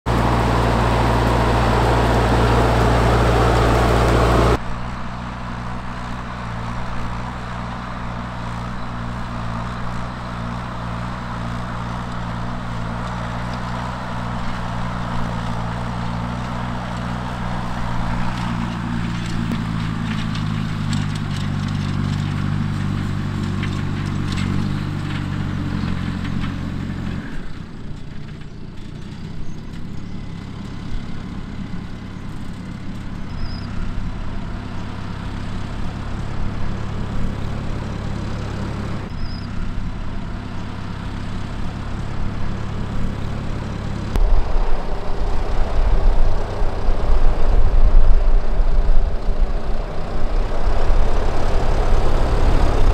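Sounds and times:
tractor diesel engine under load: 0:00.0 - 0:52.9.

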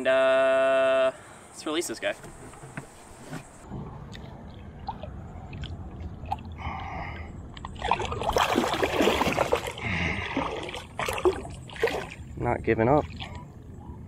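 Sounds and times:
fish thrashing and splashing: 0:07.6 - 0:12.3.

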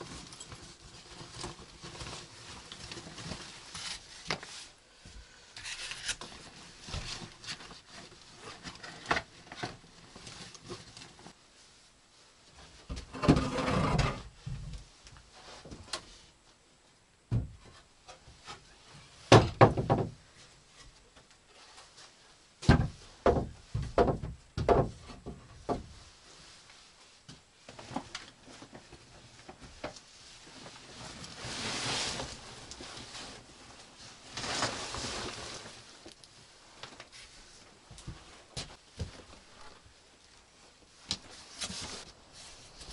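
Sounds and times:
wooden knocks and thuds: 0:17.3 - 0:17.8, 0:19.3 - 0:20.3, 0:22.6 - 0:26.0.

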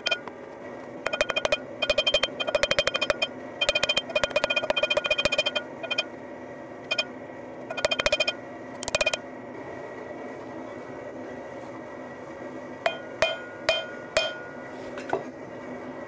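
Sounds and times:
hammer striking metal on anvil: 0:01.1 - 0:06.0, 0:12.9 - 0:14.6.

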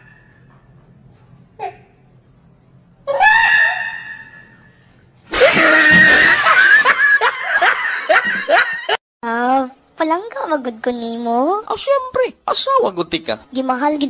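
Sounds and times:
man shrieking laughter: 0:05.3 - 0:09.0.

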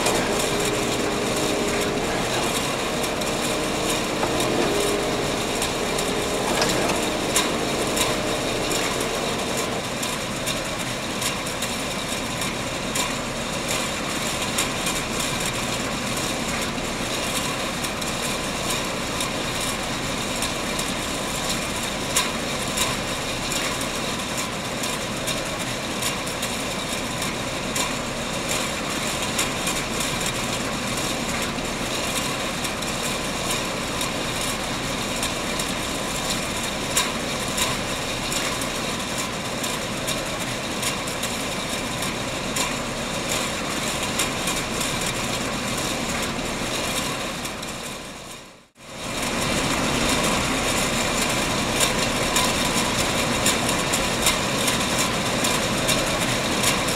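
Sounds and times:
canning machinery running: 0:00.0 - 0:11.3, 0:48.9 - 0:56.9.

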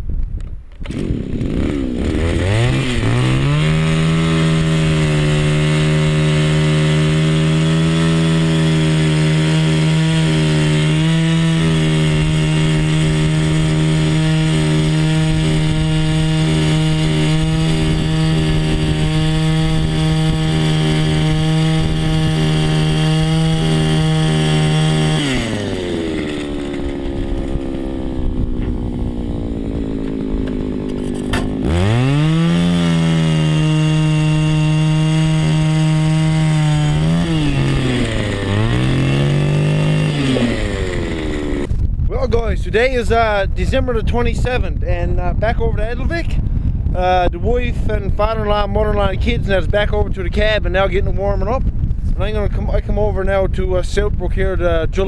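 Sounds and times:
ice auger engine revving: 0:00.8 - 0:41.8.

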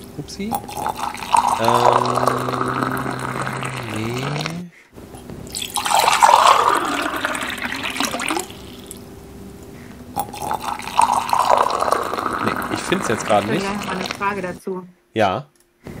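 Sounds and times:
water pouring into a cup: 0:00.5 - 0:04.6, 0:05.5 - 0:09.0, 0:10.2 - 0:14.5.

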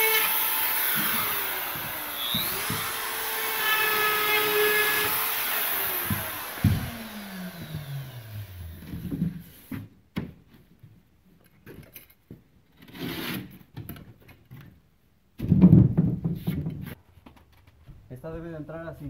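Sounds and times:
cutting tool spinning down: 0:00.0 - 0:08.8
drywall sheet knocking and rubbing: 0:15.4 - 0:17.0.

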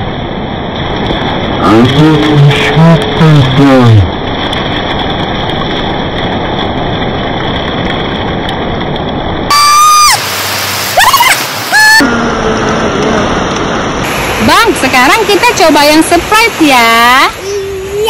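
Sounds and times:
surf on a beach: 0:00.0 - 0:18.0
wind noise: 0:00.0 - 0:18.0
high-pitched sliding cries: 0:10.9 - 0:12.0.

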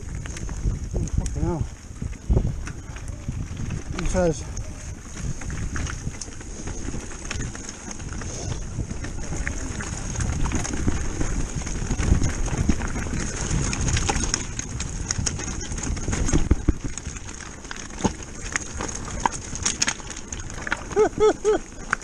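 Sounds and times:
bike tyres crunching over stones: 0:00.0 - 0:22.0
bike knocks and clatters: 0:08.8 - 0:21.3.

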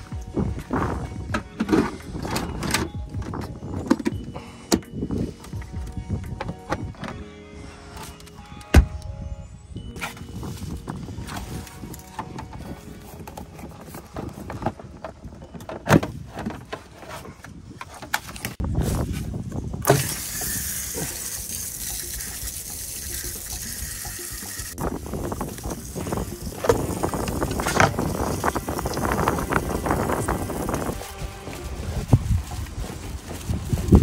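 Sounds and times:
water hissing from hose: 0:19.9 - 0:31.0.

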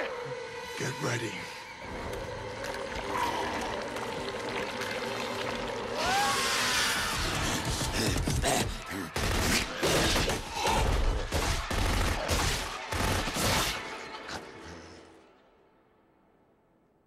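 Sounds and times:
gunfire bursts: 0:09.2 - 0:10.5, 0:11.2 - 0:13.9.

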